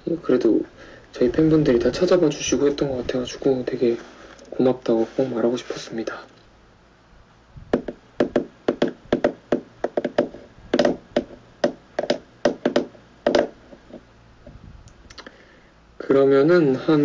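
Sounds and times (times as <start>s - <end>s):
sharp irregular knocks and taps: 7.7s - 14.0s.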